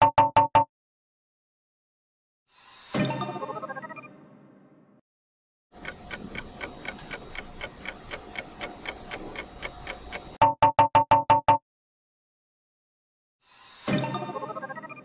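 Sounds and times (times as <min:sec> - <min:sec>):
clock-like ticking: 0:05.8 - 0:10.5.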